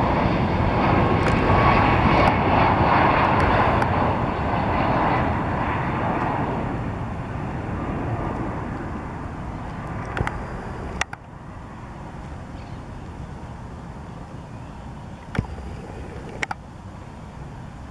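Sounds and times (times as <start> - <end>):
jet engines rushing: 0.0 - 17.9
sharp clicks: 10.0 - 10.4, 11.0 - 11.3.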